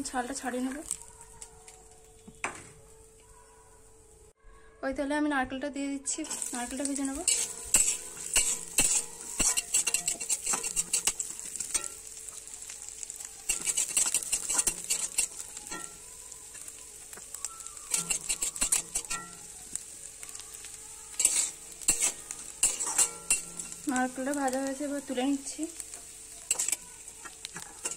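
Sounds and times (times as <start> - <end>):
coconut sizzling in oil: 0.0 - 4.4, 6.0 - 27.9
metal spatula scraping pan: 6.2 - 12.4, 13.4 - 16.7, 17.7 - 19.5, 21.1 - 27.9.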